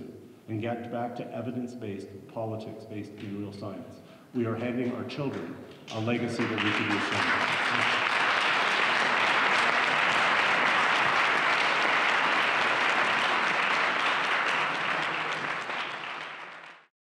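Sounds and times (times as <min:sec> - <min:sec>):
audience applauding: 0:04.8 - 0:16.9.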